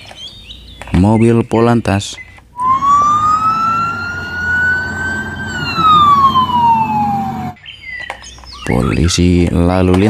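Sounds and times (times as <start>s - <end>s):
police siren wailing: 2.6s - 7.6s.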